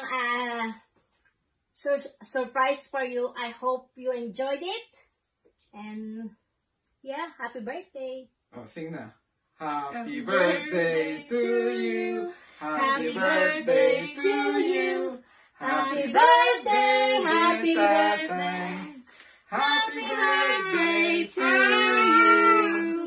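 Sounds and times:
woman and girls singing: 0:09.8 - 0:23.0.

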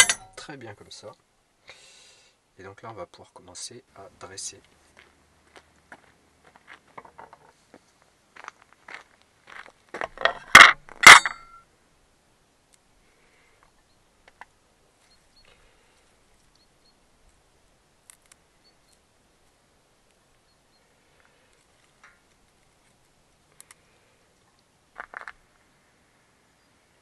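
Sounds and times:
dishes and utensils clinking: 0:00.0 - 0:00.4
sharp metallic clanks: 0:00.0 - 0:00.5, 0:10.2 - 0:11.6.

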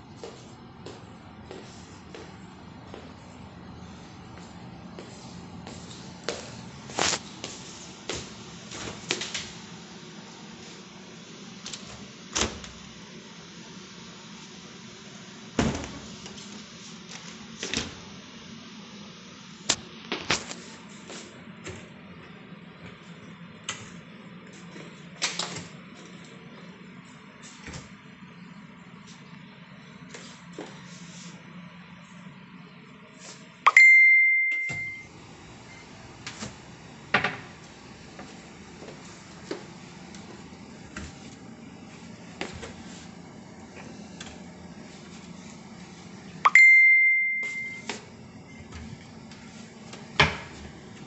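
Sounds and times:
low room hum: 0:00.0 - 0:51.0
bright high ding: 0:33.7 - 0:35.1, 0:46.5 - 0:47.8.

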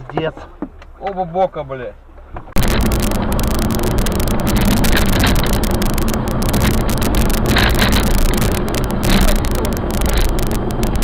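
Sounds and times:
car engine and road noise: 0:00.0 - 0:11.0
crackling clicks: 0:02.4 - 0:11.0.

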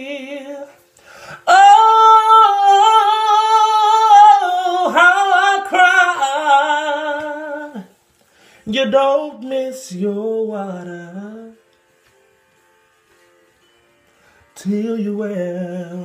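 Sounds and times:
man singing a cappella: 0:00.0 - 0:08.0, 0:08.6 - 0:11.6, 0:14.6 - 0:16.0.

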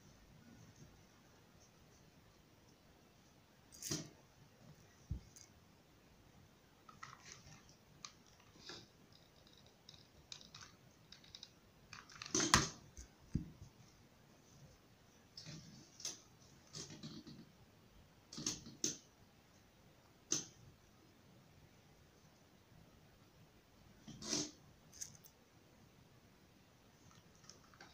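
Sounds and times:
small clicks: 0:06.9 - 0:13.1.

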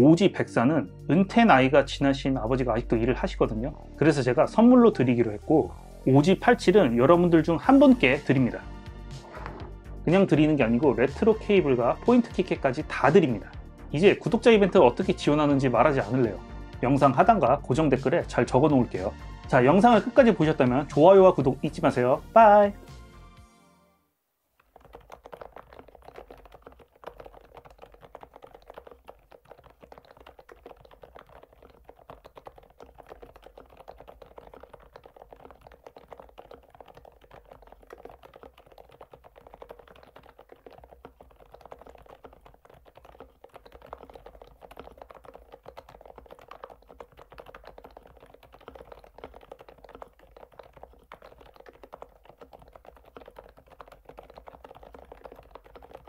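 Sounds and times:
mechanical keyboard typing: 0:24.6 - 0:56.0.

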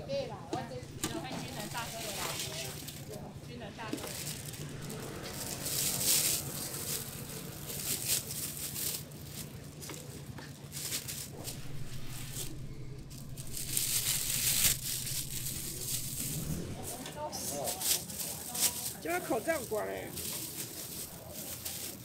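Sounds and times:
plastic bags rustling and crinkling: 0:00.6 - 0:22.0
faint steady low hum: 0:11.1 - 0:17.3.

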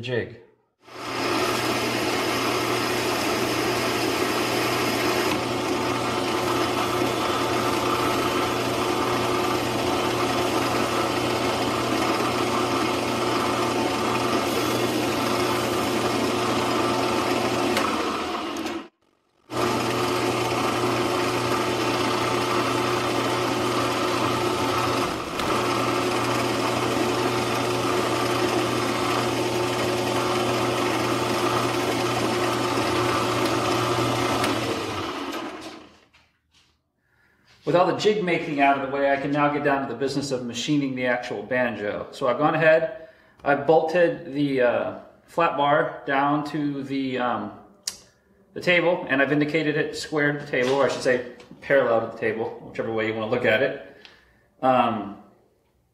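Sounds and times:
metal lathe motor and gear whine: 0:01.0 - 0:18.8, 0:19.5 - 0:35.9.

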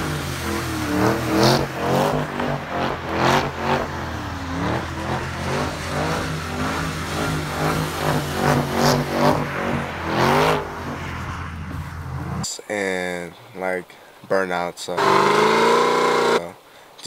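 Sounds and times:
car engine revving: 0:00.0 - 0:12.5, 0:15.0 - 0:16.5.

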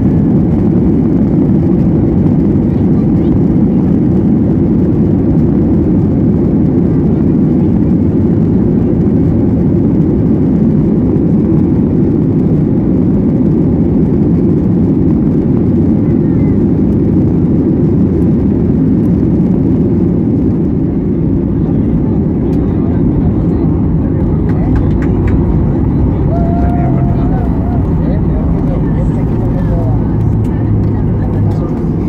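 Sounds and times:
airplane cabin engine roar: 0:00.0 - 0:32.0
rushing air: 0:16.8 - 0:32.0.

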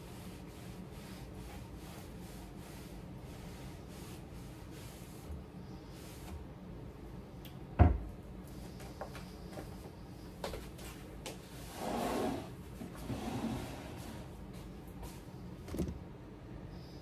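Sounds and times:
cabinet door banging shut: 0:07.8 - 0:08.0.

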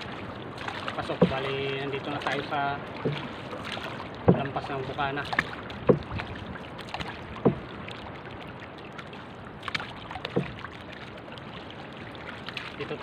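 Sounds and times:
paddle strokes in water: 0:00.0 - 0:13.0
water washing: 0:00.0 - 0:13.0
sharp wooden knocks: 0:01.2 - 0:01.5, 0:03.0 - 0:03.3, 0:04.2 - 0:04.7, 0:05.3 - 0:07.7, 0:10.3 - 0:10.6.

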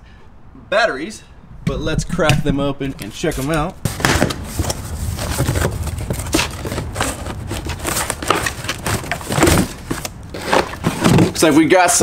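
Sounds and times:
cardboard tearing and rustling: 0:03.9 - 0:11.5
knife slitting cardboard box: 0:03.9 - 0:11.5.

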